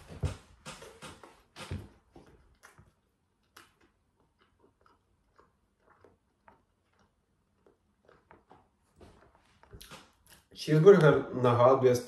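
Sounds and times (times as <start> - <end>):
chewing with mouth clicks: 2.2 - 10.5.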